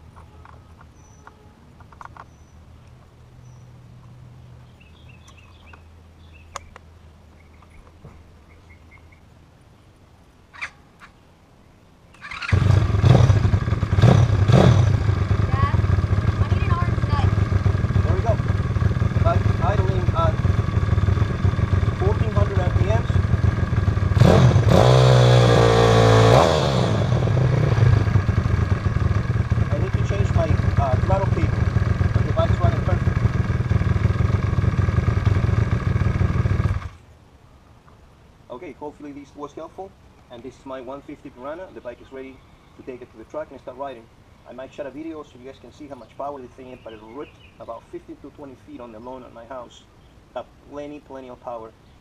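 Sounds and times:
birds chirping: 0.0 - 24.9, 27.0 - 36.1, 38.6 - 52.0
small sharp clicks of fuel line: 0.1 - 3.1, 5.2 - 5.9, 6.5 - 6.9
motorcycle engine revving: 12.2 - 37.0.

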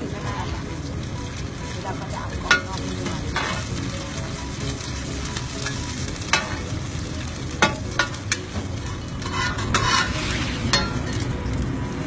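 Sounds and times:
omelette sizzling in hot oil: 0.0 - 12.0
spatula scraping pan: 2.5 - 3.8, 7.9 - 11.2.

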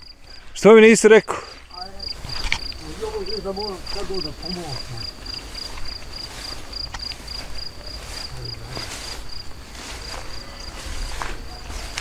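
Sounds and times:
cricket chirping: 0.0 - 12.0
footsteps through tall grass: 0.0 - 12.0.

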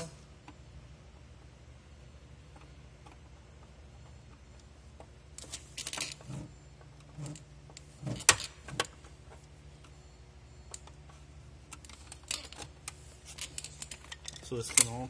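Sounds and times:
screwdriver and wires rattling: 10.8 - 15.0.

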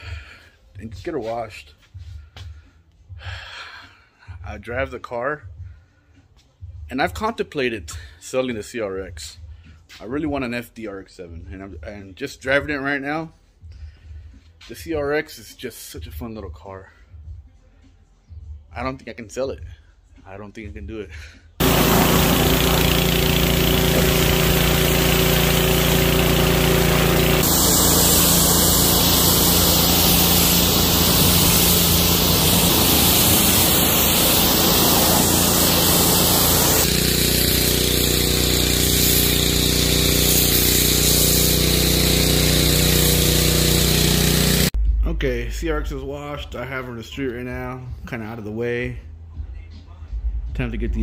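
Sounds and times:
pressure washer motor hum: 21.6 - 44.8
water jet hissing on car: 27.4 - 44.7.

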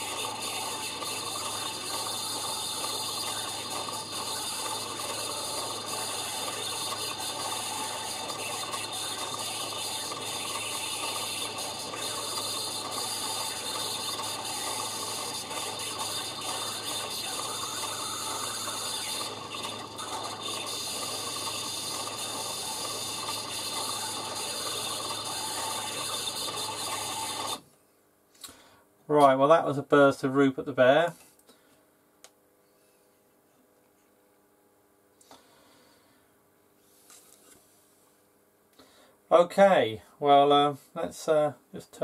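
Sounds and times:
turntable motor and gears whirring: 0.0 - 27.6.

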